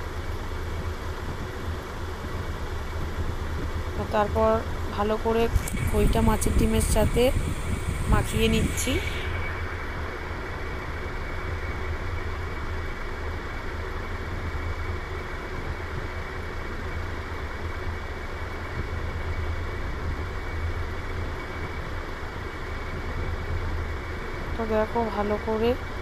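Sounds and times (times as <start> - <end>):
motor humming: 0.0 - 14.9
constant hiss: 0.0 - 26.0.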